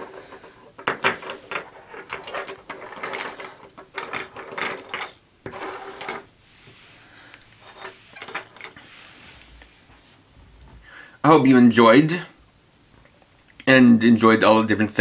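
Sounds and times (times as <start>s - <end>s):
plastic toys clattering on wood: 0.0s - 6.3s, 7.6s - 8.8s.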